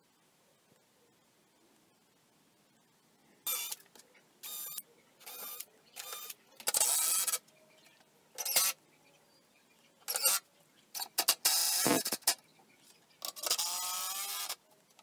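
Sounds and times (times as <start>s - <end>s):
cordless drill drilling wood: 13.4s - 14.6s.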